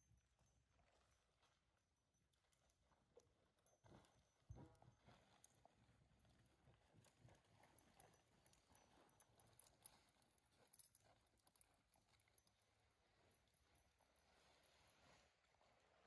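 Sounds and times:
horse hooves on soft dirt: 2.7 - 16.0.

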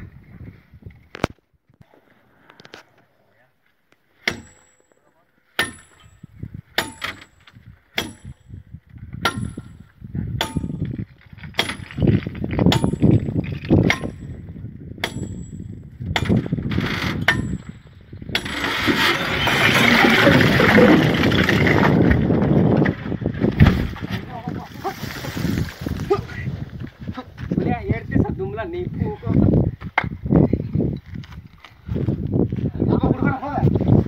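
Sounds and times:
metal clanging on metal: 4.2 - 8.6, 9.2 - 14.4, 15.0 - 20.9
rock rumbling as it gives way: 16.6 - 28.4.

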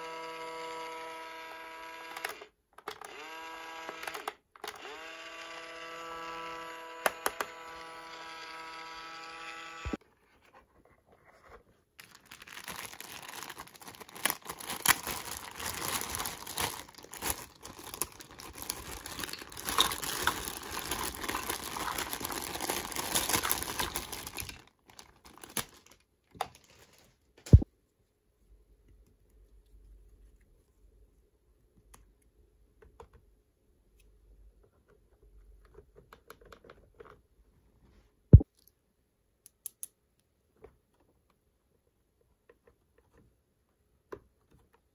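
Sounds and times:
plastic packaging crinkling and tearing: 12.0 - 27.2.

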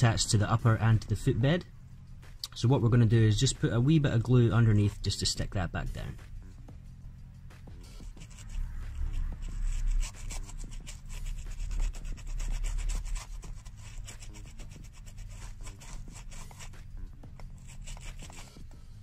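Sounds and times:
brush scrubbing on leather: 7.8 - 18.8.

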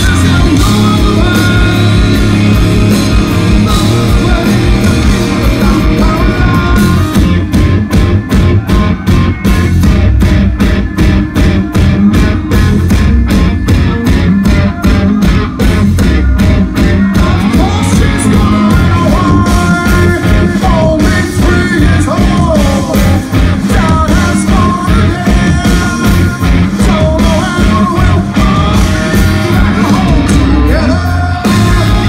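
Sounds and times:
man singing: 0.0 - 7.5, 14.4 - 32.0
live rock band playing: 0.0 - 32.0.

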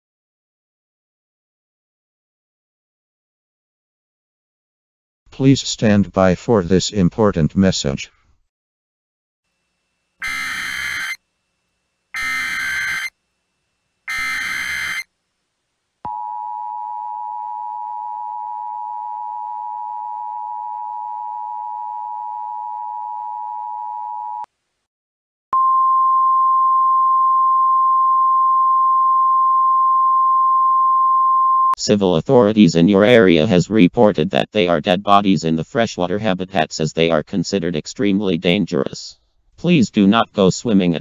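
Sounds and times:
buzzing digital chirps: 10.2 - 11.2, 12.1 - 13.2, 14.1 - 15.1
steady alert tone: 10.2 - 11.2, 12.2 - 13.1, 14.1 - 15.0
two-tone attention signal: 10.2 - 11.2, 12.2 - 13.1, 14.1 - 15.1.

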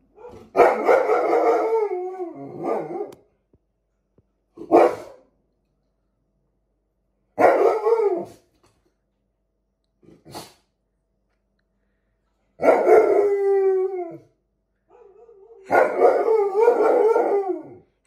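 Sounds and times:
dog howling barks: 0.1 - 3.2, 7.4 - 8.4, 12.6 - 14.3, 14.9 - 17.9.

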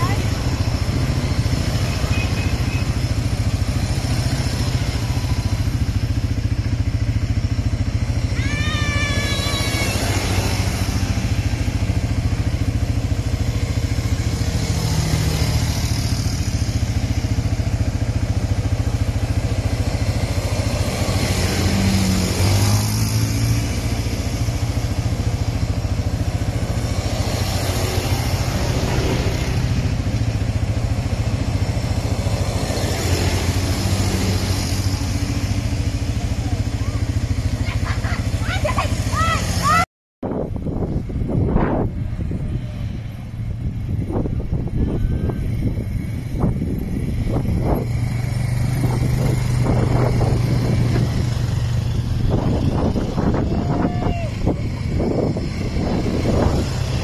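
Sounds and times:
engine revving: 0.0 - 6.5, 8.0 - 35.8, 45.2 - 53.5, 54.2 - 57.0
atv engines running: 0.0 - 57.0.

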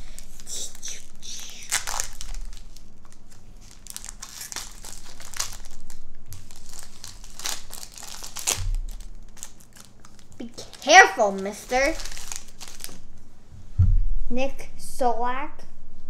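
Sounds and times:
foil wrapper crinkling: 0.0 - 13.1.

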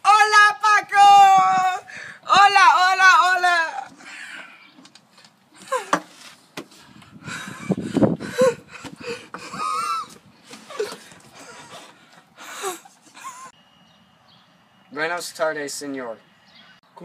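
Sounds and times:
breathy wheezy laughter: 7.3 - 13.5.

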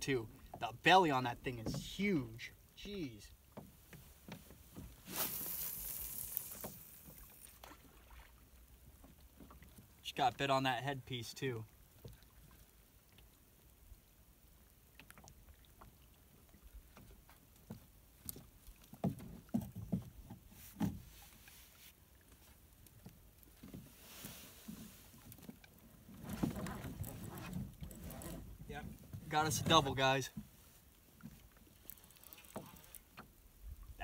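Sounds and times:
waves lapping against boat hull: 0.0 - 10.5, 11.1 - 34.0
fishing gear rustling: 3.9 - 7.6, 23.4 - 33.3.

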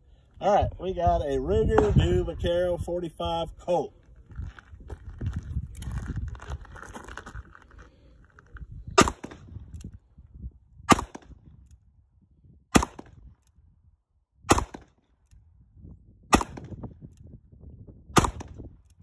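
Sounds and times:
revolver gunshots: 9.0 - 9.5, 10.9 - 11.4, 12.7 - 13.1, 14.5 - 15.0, 16.3 - 16.8, 18.2 - 18.6.

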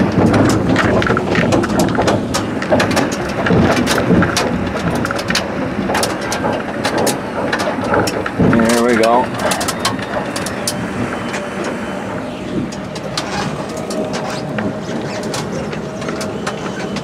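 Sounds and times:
rattles and knocks: 0.0 - 17.0
vehicle cabin rumble: 0.0 - 17.0.

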